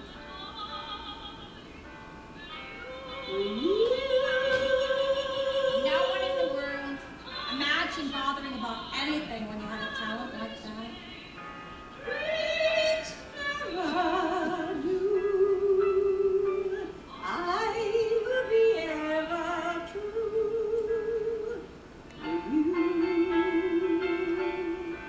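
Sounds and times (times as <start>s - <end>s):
woman singing operatically: 0.0s - 1.8s, 2.4s - 11.4s, 12.0s - 25.0s.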